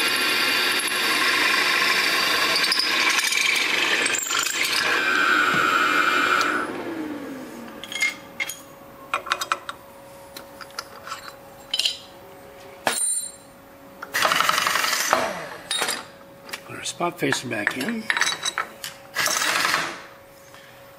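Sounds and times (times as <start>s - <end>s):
drilling machine winding down: 0.0s - 7.7s, 14.1s - 15.9s, 19.2s - 20.0s.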